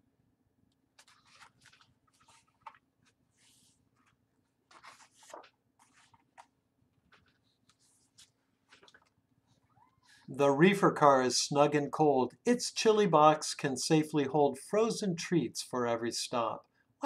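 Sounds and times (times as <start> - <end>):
book pages turning: 0.9 - 9.2.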